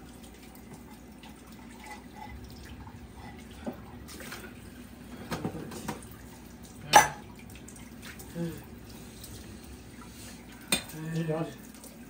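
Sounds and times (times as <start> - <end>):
dishes clinking: 6.9 - 7.3.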